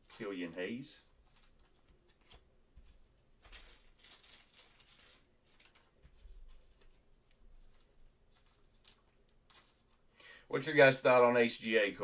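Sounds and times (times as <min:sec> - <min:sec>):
soft rustles of trading cards: 0:00.0 - 0:12.0.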